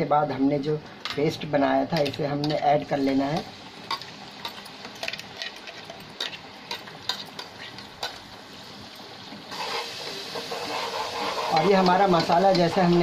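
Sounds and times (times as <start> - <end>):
onions sizzling in oil: 0.0 - 13.0
metal spoon scraping a pot: 9.6 - 13.0.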